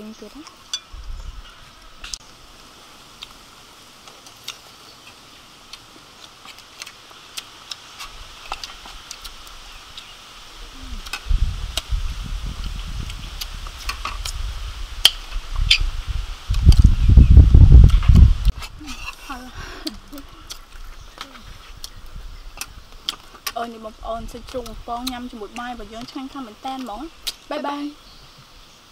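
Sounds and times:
people chewing: 0:03.1 - 0:12.0, 0:12.6 - 0:14.4, 0:17.8 - 0:27.9.

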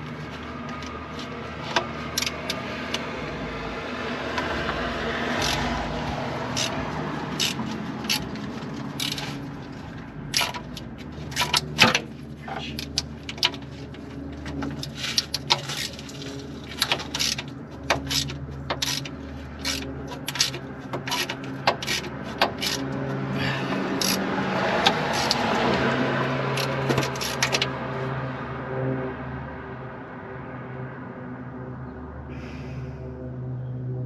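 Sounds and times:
metal scraping: 0:00.0 - 0:27.8
ratchet clicking: 0:00.8 - 0:03.1, 0:05.3 - 0:09.5, 0:10.3 - 0:12.1, 0:14.6 - 0:22.9, 0:24.0 - 0:25.8, 0:26.5 - 0:27.7.

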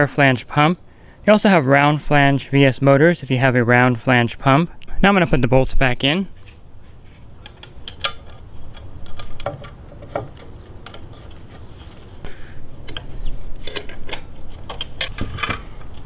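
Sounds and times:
small metal clicks and taps: 0:07.4 - 0:11.3.

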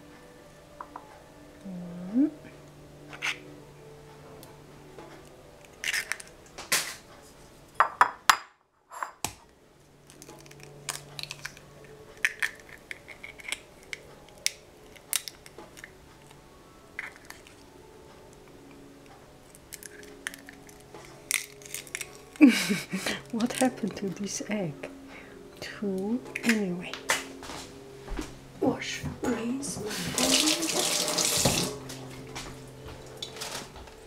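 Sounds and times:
utensil and eggshell clinking on bowl: 0:05.8 - 0:06.3.

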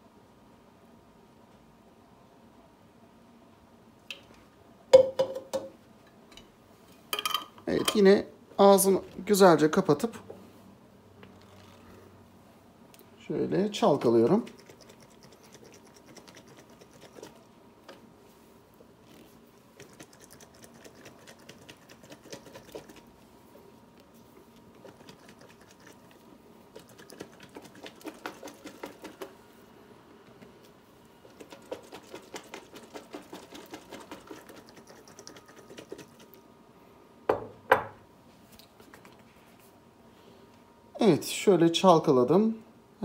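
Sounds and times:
jar thumping on countertop: 0:05.0 - 0:05.7.

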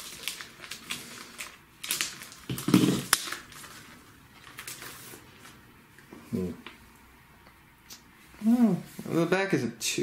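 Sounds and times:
plastic bag and cardboard rustling: 0:00.0 - 0:06.6.

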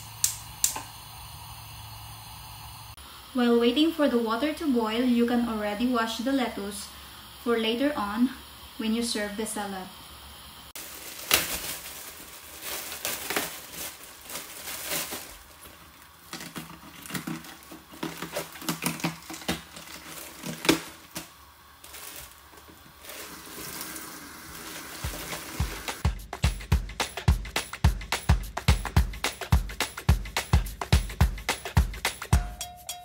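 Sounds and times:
lettuce leaves crinkling: 0:10.8 - 0:26.0
background music with beat: 0:25.1 - 0:33.0.

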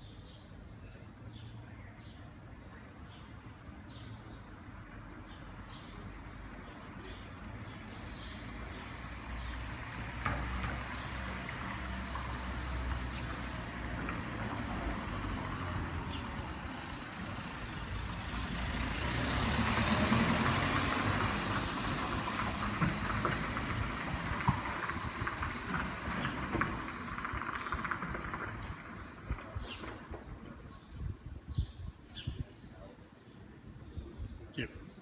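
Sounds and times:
street traffic rumble: 0:00.0 - 0:35.0
vehicle passing: 0:08.5 - 0:29.9.

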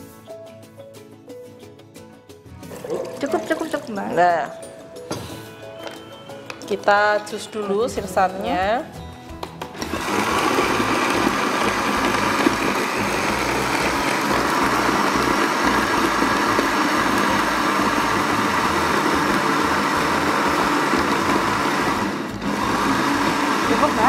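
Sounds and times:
blender running: 0:09.8 - 0:24.0.

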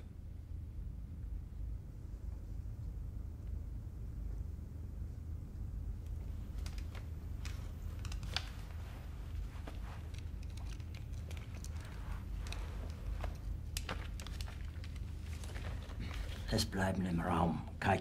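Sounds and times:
steady low hum: 0:00.0 - 0:18.0
faint clicks and rustles: 0:05.8 - 0:16.8.

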